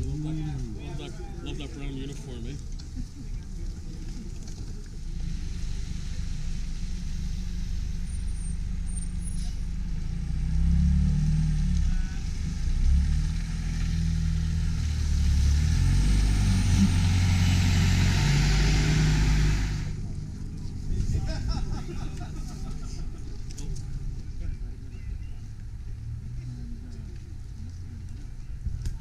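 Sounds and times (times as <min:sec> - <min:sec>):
bus engine rumble: 0:00.0 - 0:29.0
tyre and road hiss: 0:03.6 - 0:10.4, 0:11.2 - 0:20.8.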